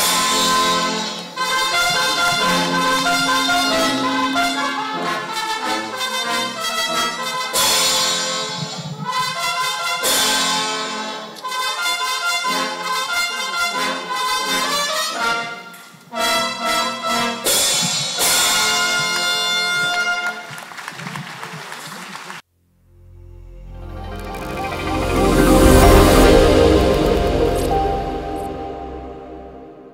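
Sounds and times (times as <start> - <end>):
brass-led music: 0.0 - 8.5, 9.2 - 17.7, 23.0 - 29.9.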